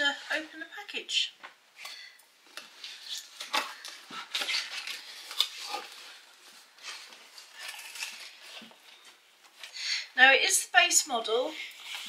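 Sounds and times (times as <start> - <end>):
packing paper rustling: 2.6 - 9.7.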